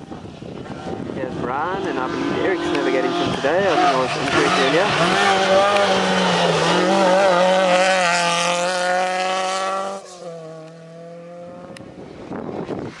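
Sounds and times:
rally car engine running hard: 1.5 - 11.8.

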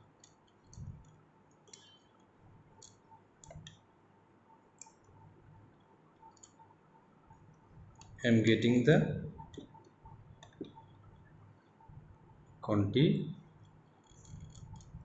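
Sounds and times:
faint clicks and soft knocks: 0.0 - 3.9, 9.4 - 12.6, 13.4 - 15.0.

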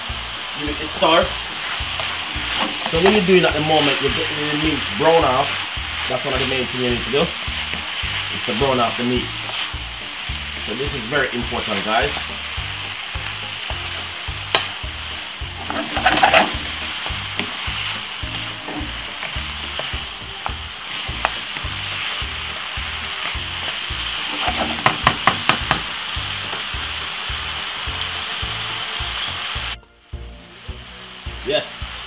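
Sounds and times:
meat sizzling in a frying pan: 0.0 - 32.0
wooden spoon scraping a pan: 0.8 - 9.7, 15.6 - 25.2.

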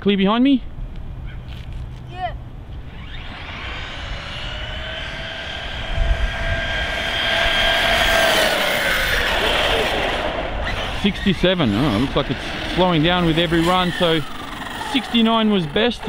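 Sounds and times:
electric motor whining: 2.7 - 16.0.

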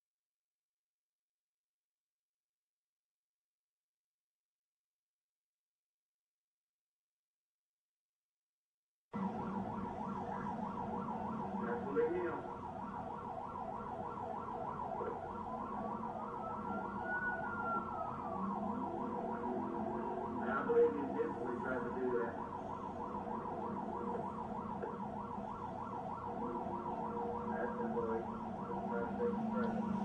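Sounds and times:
police siren yelping: 9.2 - 30.0
rising and falling siren tone: 9.2 - 30.0.

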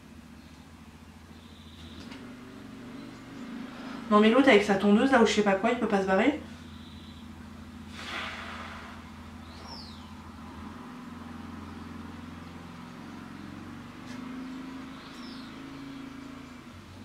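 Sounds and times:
quad bike engine droning: 0.0 - 17.0.

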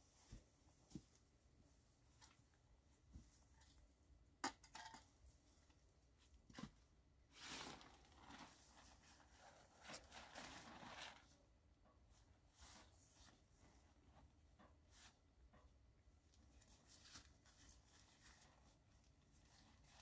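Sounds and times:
tent fabric rustling and flapping: 7.3 - 11.2.

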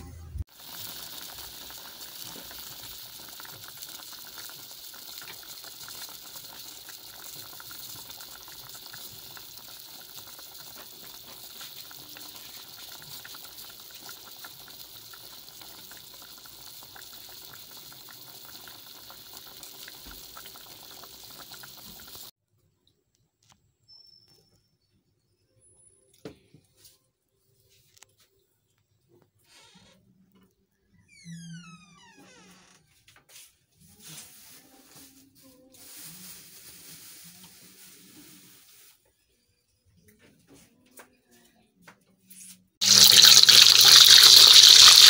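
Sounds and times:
pot boiling with bubbling pops: 0.5 - 22.4, 42.8 - 45.0.

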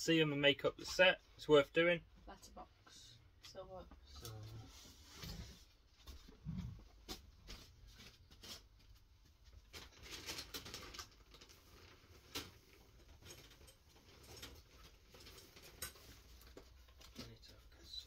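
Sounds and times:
small objects clicking and rustling: 9.7 - 17.4.

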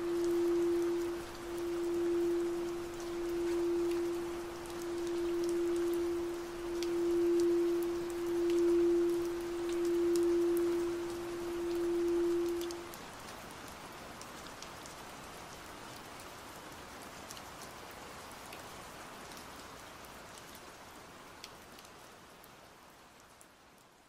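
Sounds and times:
sharp drop ticks: 0.0 - 12.8
steady rain: 0.0 - 24.0.

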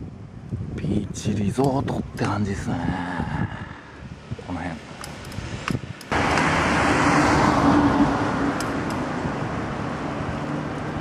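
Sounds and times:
tyre and road noise: 1.4 - 11.0
car engine hum: 6.1 - 11.0.

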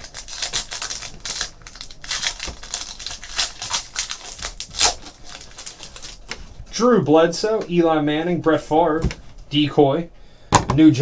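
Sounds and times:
plastic foil wrapper crinkling: 0.0 - 6.6.

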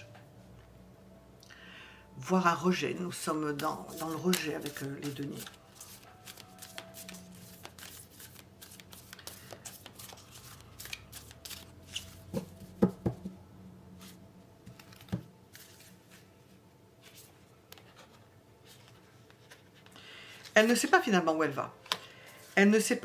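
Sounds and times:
cards shuffling: 3.5 - 13.0, 14.7 - 16.3
cards tapping together: 3.5 - 13.2.

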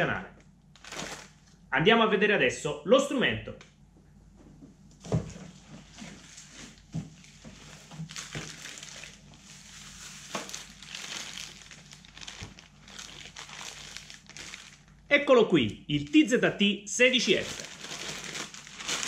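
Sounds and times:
plastic packing rustling: 0.7 - 1.6, 5.0 - 15.1, 17.0 - 19.0.

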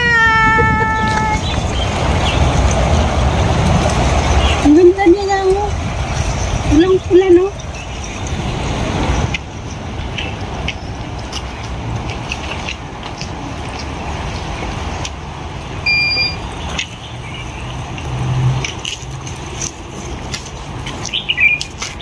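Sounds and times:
strong wind buffeting microphone: 0.0 - 15.8.

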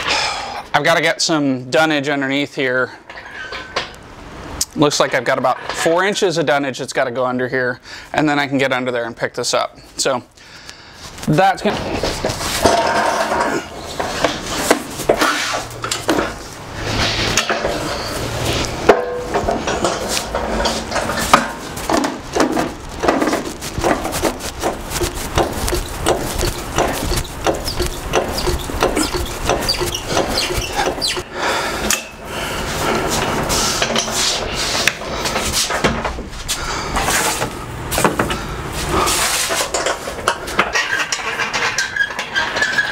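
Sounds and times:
pallet jack rattling: 19.0 - 31.3.

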